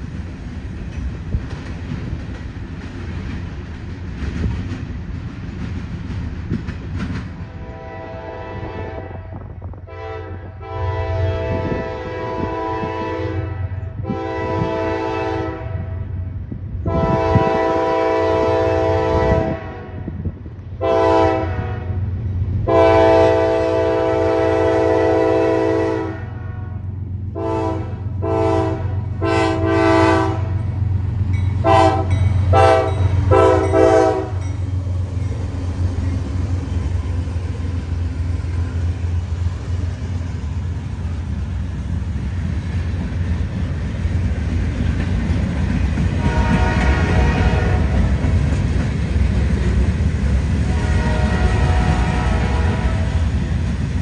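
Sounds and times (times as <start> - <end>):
train wheels rumbling: 0.0 - 54.0
locomotive air horn: 7.5 - 16.2, 16.8 - 20.2, 20.8 - 22.0, 22.6 - 30.7, 31.6 - 34.5, 46.2 - 48.2, 50.6 - 53.3.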